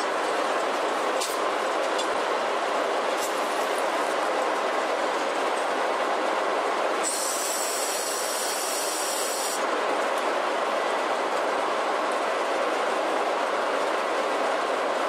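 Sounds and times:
high hiss: 7.0s - 9.6s.

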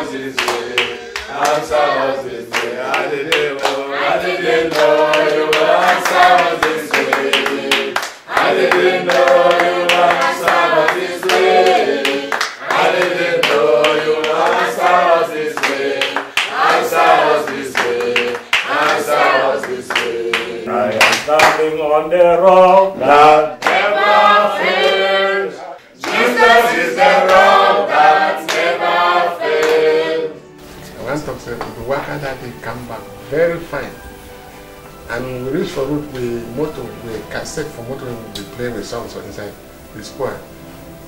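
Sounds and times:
hands clapping: 0.0s - 21.7s, 23.6s - 25.0s, 25.8s - 28.8s, 29.4s - 29.9s, 30.8s - 32.5s, 36.0s - 37.2s, 38.3s - 38.7s
group singing gospel chorus: 0.0s - 34.0s.

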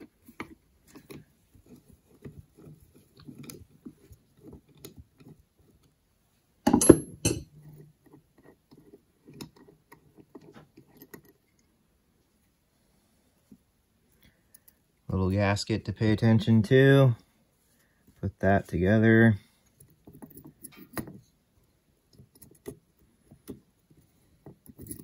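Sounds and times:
screwdriver clicking and scraping metal: 22.1s - 25.0s.

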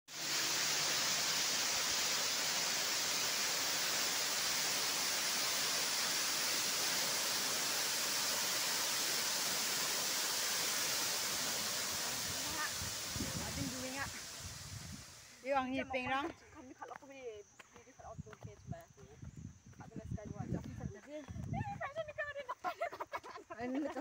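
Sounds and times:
waterfall rushing: 0.1s - 15.3s.

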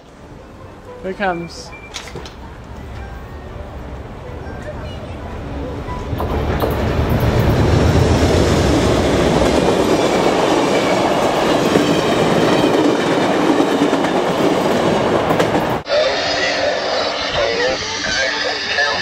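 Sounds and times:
train cars rushing: 3.9s - 19.0s.

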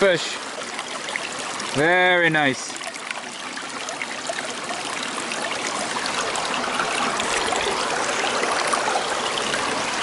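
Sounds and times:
brook water trickling: 0.0s - 10.0s.

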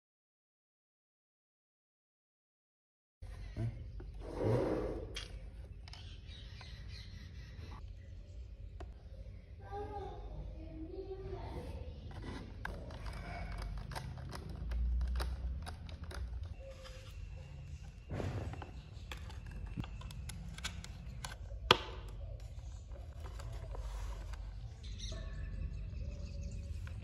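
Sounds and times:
model parts clicking and knocking: 12.6s - 16.6s.

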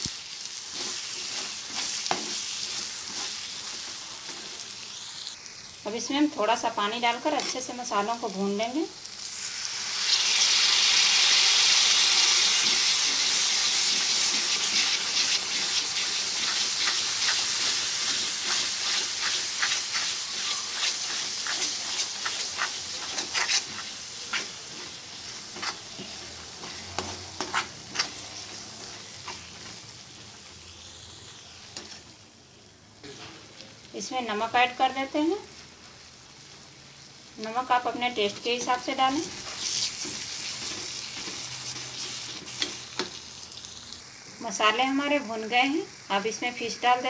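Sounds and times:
spices sizzling in hot oil: 0.0s - 47.0s
metal spatula scraping pan: 12.5s - 29.8s, 38.6s - 43.1s.

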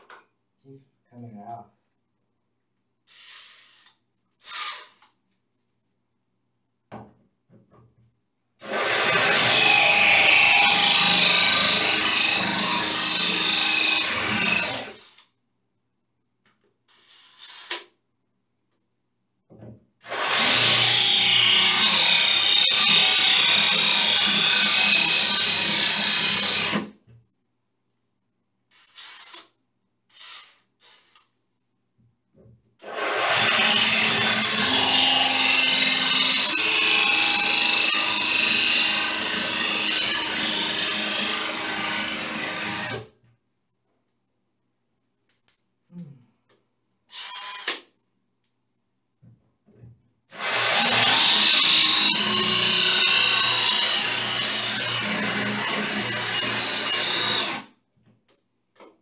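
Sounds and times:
drill boring into tile: 3.1s - 5.0s, 8.6s - 15.2s, 20.0s - 26.9s, 28.8s - 29.5s, 32.8s - 43.1s, 47.1s - 47.8s, 50.3s - 57.7s.

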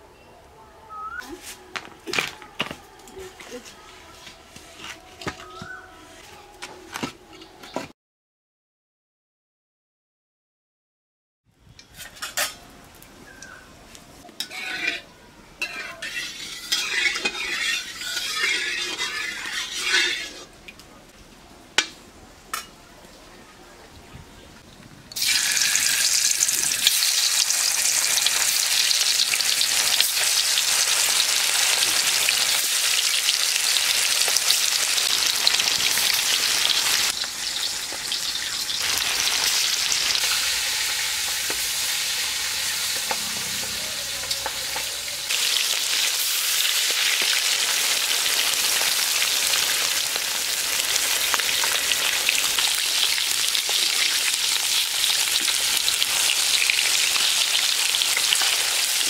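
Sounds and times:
fish frying in hot oil: 25.2s - 43.1s, 44.0s - 59.0s.

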